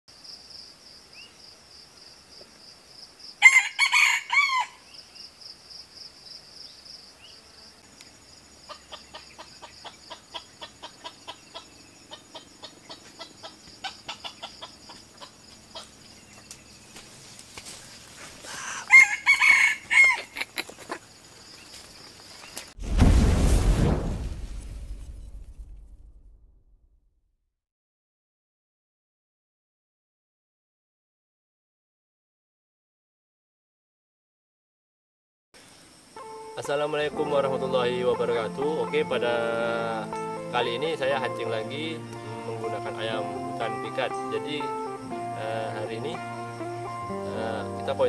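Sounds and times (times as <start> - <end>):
roosters crowing: 3.4 - 4.8, 18.5 - 20.6.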